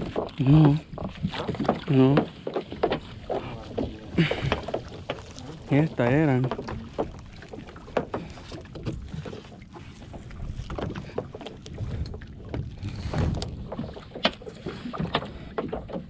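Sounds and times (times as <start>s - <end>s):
wind buffeting microphone: 0.0s - 15.6s
net clicking and knocking on boat: 0.0s - 16.0s.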